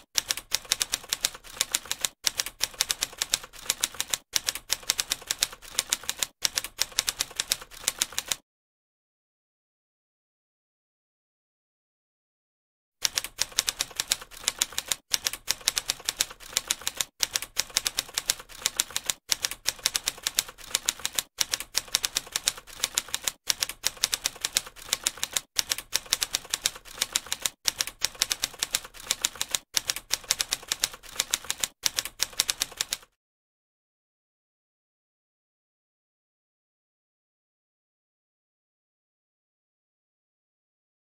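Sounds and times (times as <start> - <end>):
typewriter keystrokes clattering: 0.2 - 8.4, 13.0 - 33.1.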